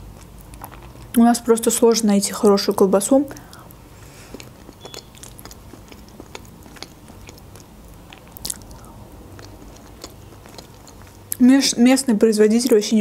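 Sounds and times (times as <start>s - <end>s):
wet chewing: 0.0s - 1.2s, 3.4s - 11.7s
mouth clicks: 4.3s - 11.4s.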